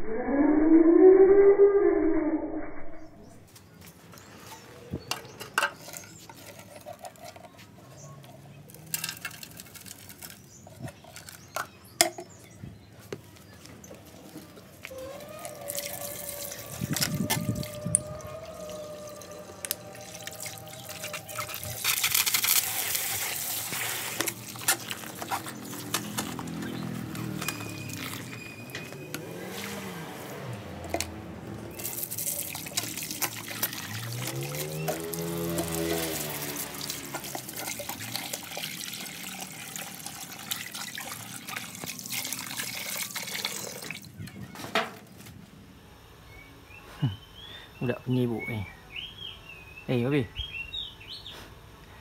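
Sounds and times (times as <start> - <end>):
hose water splashing into tank: 19.0 - 28.4, 31.7 - 44.1.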